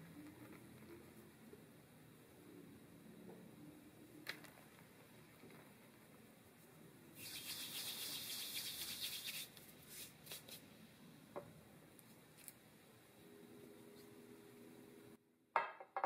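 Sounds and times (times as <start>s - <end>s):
hand brushing flour on paper: 7.2s - 10.6s.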